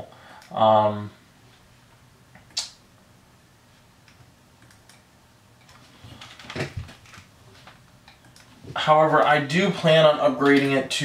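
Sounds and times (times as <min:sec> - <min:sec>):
computer mouse click: 0:04.0 - 0:05.8.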